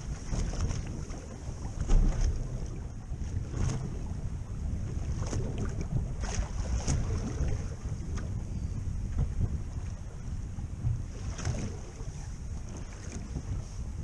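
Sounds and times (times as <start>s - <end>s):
wind buffeting microphone: 0.0s - 14.0s
sharp knocks on boat: 1.8s - 2.5s, 9.1s - 9.9s, 10.8s - 12.0s.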